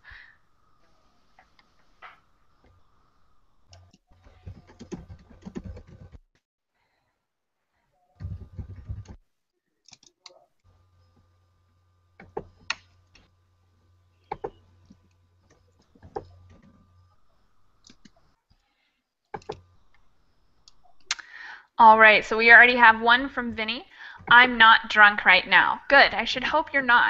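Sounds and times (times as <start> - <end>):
faint low hum: 0.0 - 6.2, 7.8 - 27.0
computer keys typing: 3.7 - 6.2, 8.2 - 9.2, 14.3 - 14.6, 15.5 - 18.2, 19.4 - 20.0.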